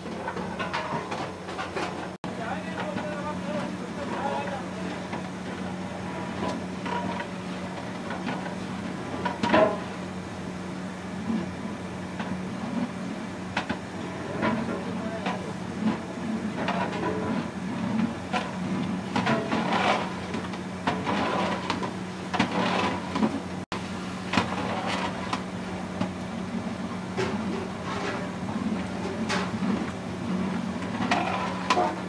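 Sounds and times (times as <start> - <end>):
ladle scraping a metal pot: 20.9 - 23.2.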